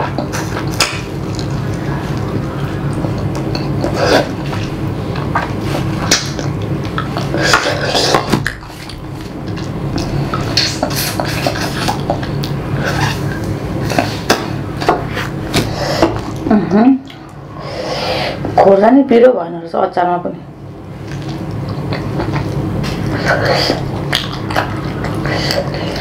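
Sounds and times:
person chewing food: 0.0s - 17.4s, 21.0s - 26.0s
steady low hum: 0.0s - 26.0s
wet smacks and crunchy clicks: 0.6s - 1.5s.

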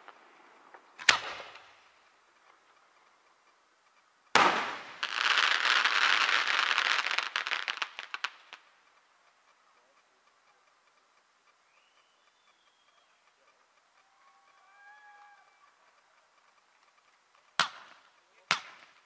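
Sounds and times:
firework shells bursting: 0.0s - 9.6s, 16.3s - 19.0s
firework crackling: 0.0s - 19.0s.

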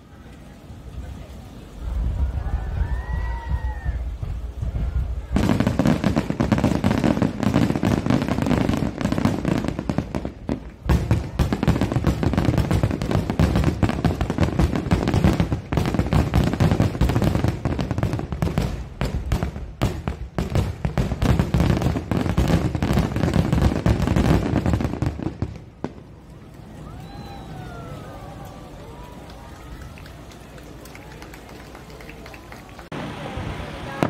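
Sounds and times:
fireworks booms and crackles: 1.8s - 26.2s.

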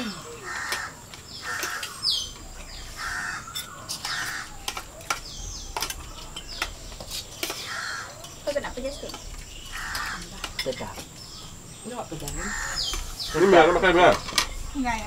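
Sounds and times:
bird cawing: 0.0s - 4.8s, 7.5s - 8.4s, 9.6s - 10.5s, 12.3s - 13.9s.

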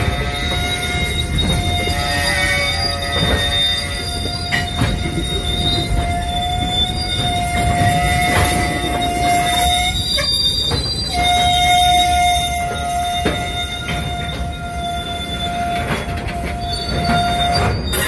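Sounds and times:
high-pitched wheel squeal: 0.0s - 18.0s
train wheels rumbling on rails: 0.0s - 18.0s.

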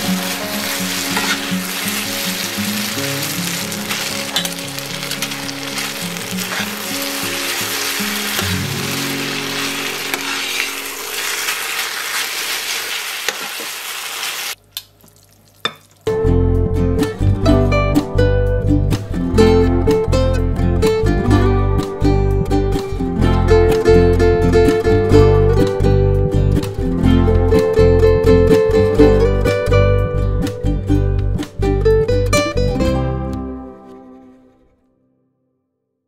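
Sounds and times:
quiet background music: 0.0s - 11.9s
acoustic guitar music: 0.0s - 12.8s, 16.0s - 35.4s
food sizzling in a pan: 0.0s - 16.1s.

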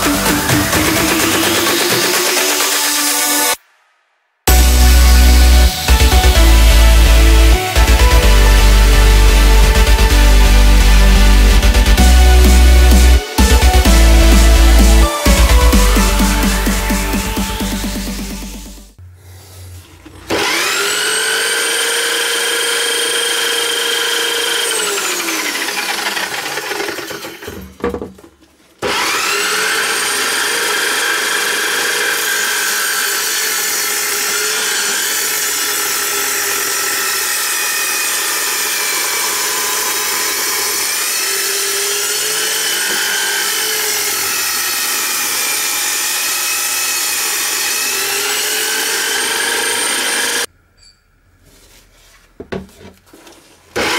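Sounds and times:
electric drill saw whine: 0.0s - 3.6s, 20.1s - 27.7s, 28.8s - 50.5s
saw blade cutting wood: 0.0s - 3.6s, 19.4s - 27.8s, 28.8s - 50.5s.

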